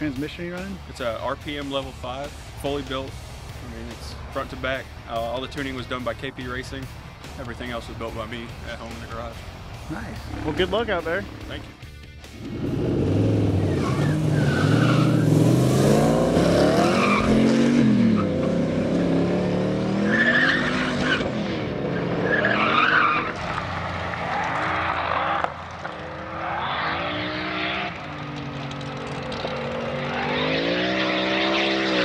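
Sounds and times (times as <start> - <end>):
car engines accelerating hard: 0.0 - 32.0
tire squeal: 13.6 - 15.5, 16.7 - 18.5, 20.0 - 32.0.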